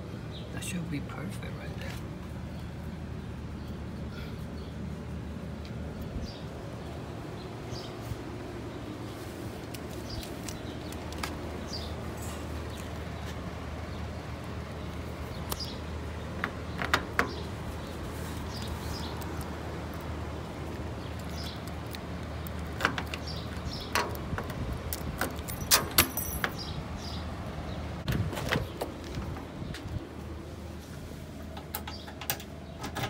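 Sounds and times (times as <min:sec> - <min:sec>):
keys jingling: 0:25.0 - 0:26.7.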